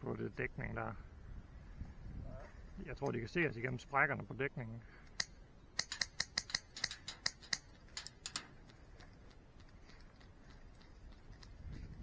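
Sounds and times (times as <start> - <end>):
airsoft gun snapping clicks: 5.0 - 8.4.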